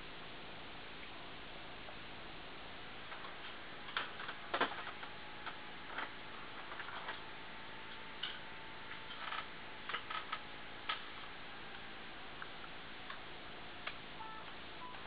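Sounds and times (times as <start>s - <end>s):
hard disk drive clicking: 3.1s - 15.0s.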